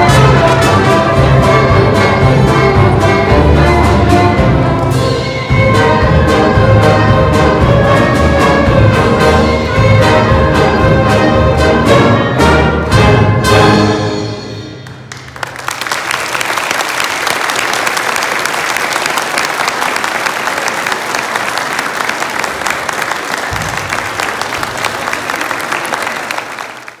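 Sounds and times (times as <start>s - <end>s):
orchestra chord: 0.0s - 14.9s
audience applause: 15.1s - 27.0s.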